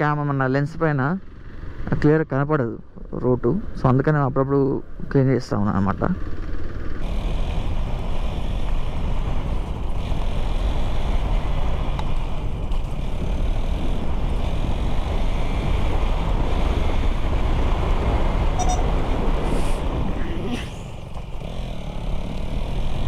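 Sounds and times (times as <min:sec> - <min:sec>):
motorcycle engine cruising: 0:04.9 - 0:23.0
wind rushing over microphone: 0:07.0 - 0:23.0.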